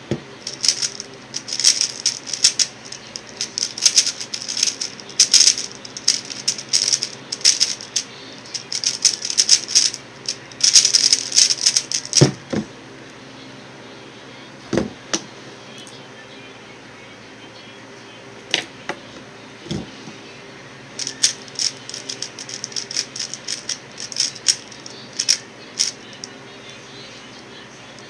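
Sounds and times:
puzzle cube clicking: 0.5 - 10.0, 10.6 - 12.2, 21.0 - 26.0.

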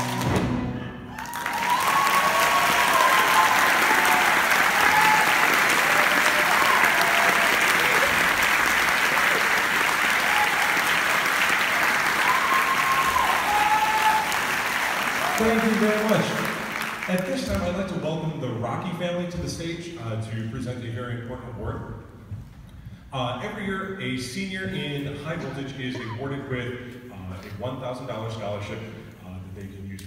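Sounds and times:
audience applause: 0.0 - 17.8
people whooping: 1.1 - 15.8.

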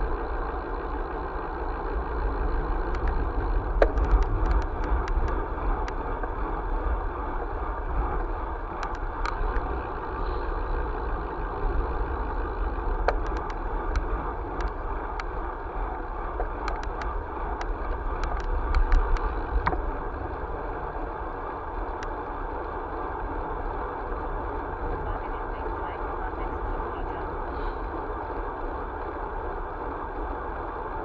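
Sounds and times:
tyre and wind rumble: 0.0 - 25.2
light clicks and rattles: 2.8 - 6.4, 8.2 - 9.7, 13.0 - 15.4, 16.3 - 19.9.

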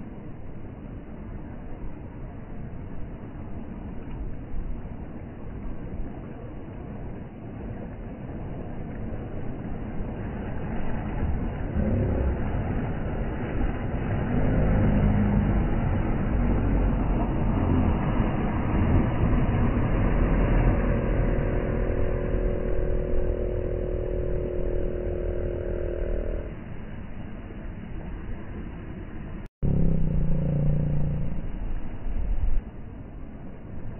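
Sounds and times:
steady engine hum: 0.0 - 33.9
outboard boat motors running: 5.3 - 27.0, 29.6 - 32.2.

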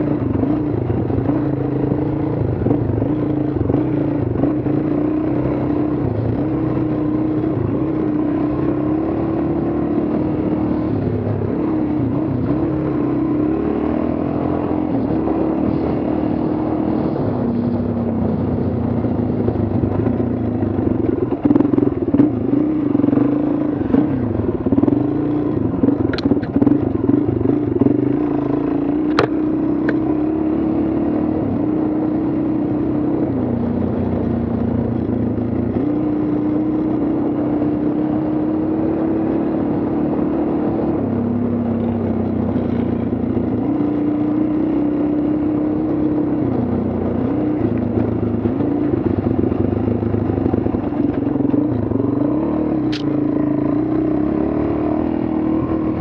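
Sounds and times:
motorcycle engine revving: 0.0 - 56.0
sharp clicks: 52.9 - 53.1.

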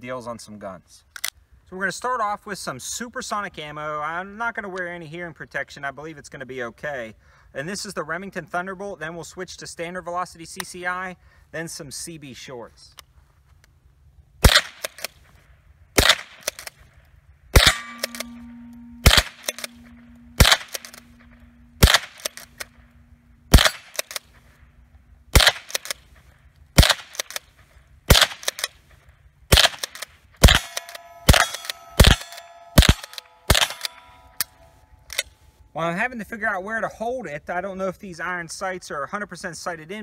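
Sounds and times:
rifle shots: 14.4 - 15.2, 16.0 - 16.7, 17.6 - 22.8, 23.5 - 24.4, 25.3 - 26.2, 26.8 - 28.8, 29.5 - 34.1
steel targets ringing: 17.6 - 24.2, 30.4 - 35.6.

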